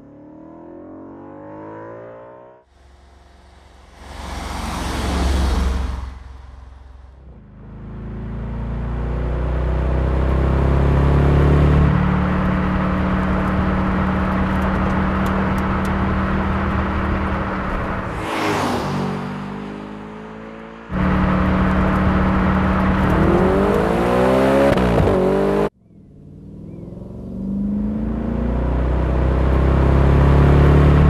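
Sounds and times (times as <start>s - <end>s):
car engine accelerating: 0.0s - 31.0s
car passing by: 2.7s - 7.4s, 18.0s - 20.8s.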